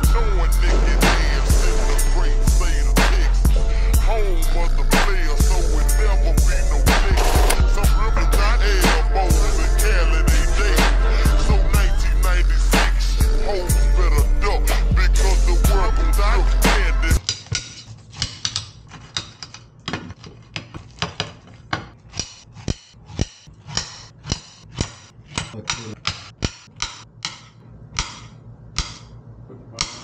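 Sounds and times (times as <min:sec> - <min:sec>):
music with a beat: 0:00.0 - 0:17.2.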